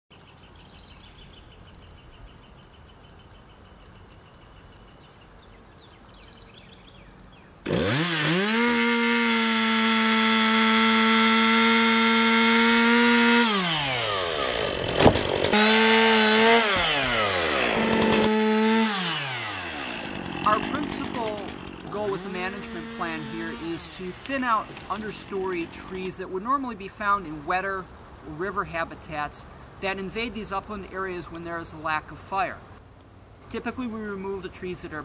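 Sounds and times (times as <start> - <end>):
chainsaw revving: 7.6 - 26.2.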